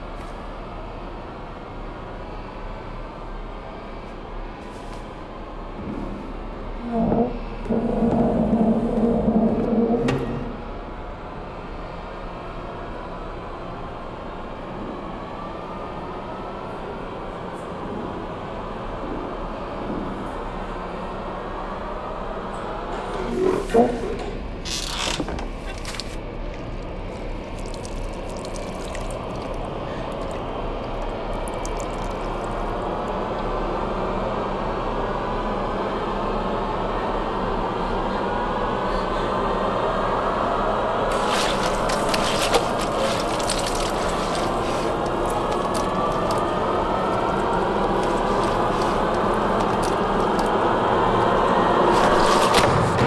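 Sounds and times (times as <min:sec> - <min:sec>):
water trickling from wrung cloth: 0:25.7 - 0:33.2, 0:41.1 - 0:52.5.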